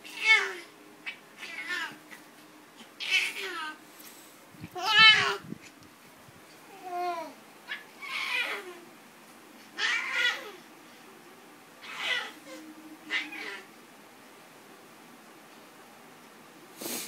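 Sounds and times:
toddler high-pitched vocal sounds: 0:04.7 - 0:05.4, 0:06.7 - 0:07.4.

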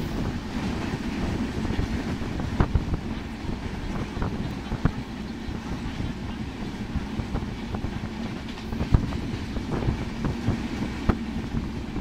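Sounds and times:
train rumble and rattle: 0:00.0 - 0:12.0.

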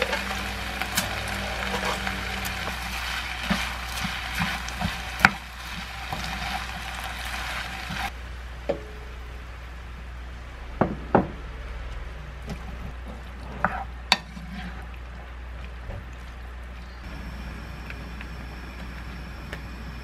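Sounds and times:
food sizzling in a frying pan: 0:00.0 - 0:08.1
spatula scraping a pan: 0:00.0 - 0:08.1, 0:13.4 - 0:14.9.

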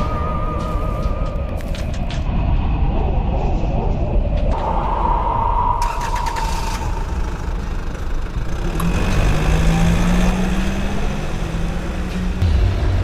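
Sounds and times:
car engine rumbling: 0:00.0 - 0:13.0.

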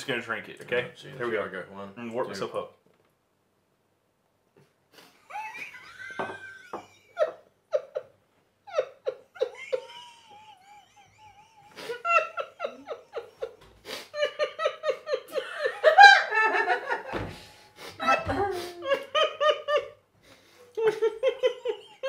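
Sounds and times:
men laughing: 0:05.0 - 0:20.0, 0:20.7 - 0:22.0.

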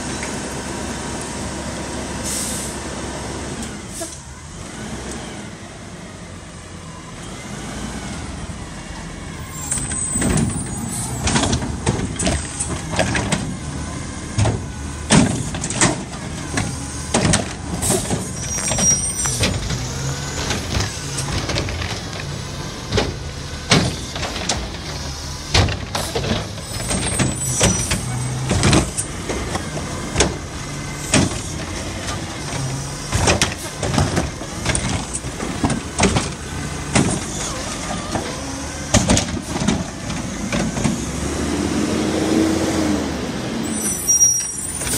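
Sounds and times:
garbage truck diesel engine: 0:00.0 - 0:44.9
air brake squeals: 0:02.2 - 0:02.8, 0:03.9 - 0:04.3, 0:09.4 - 0:11.3, 0:17.8 - 0:20.4, 0:26.0 - 0:28.4, 0:43.6 - 0:44.9
metallic clanks and bangs: 0:14.3 - 0:41.0.

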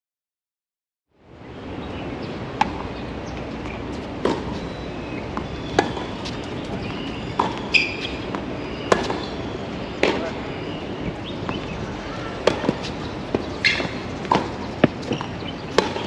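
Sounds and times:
steady outdoor hum: 0:01.1 - 0:16.0
tennis balls struck and bouncing: 0:02.5 - 0:04.6, 0:05.2 - 0:10.5, 0:11.1 - 0:16.0.

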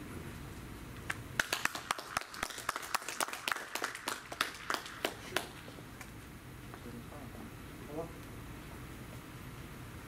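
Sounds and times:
people clapping: 0:01.1 - 0:06.1.

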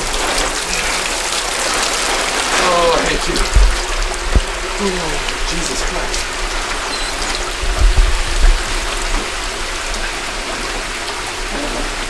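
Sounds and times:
water pouring and draining: 0:00.0 - 0:12.0
low thumps: 0:02.4 - 0:09.9.

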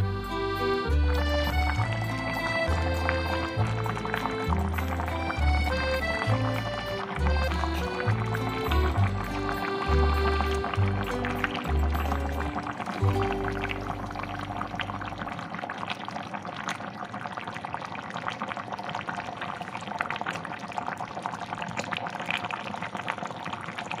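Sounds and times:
soup bubbling in a pot: 0:00.6 - 0:24.0.

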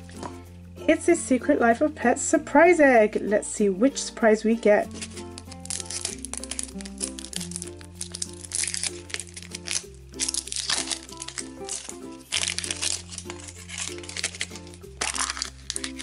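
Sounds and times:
background music with bass notes: 0:00.0 - 0:16.0
plastic capsule pulled open: 0:04.9 - 0:16.0
plastic wrapper crinkling: 0:04.9 - 0:16.0.

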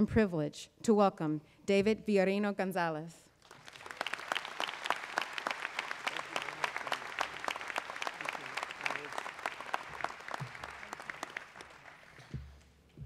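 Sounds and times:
audience applauding: 0:03.4 - 0:12.6.

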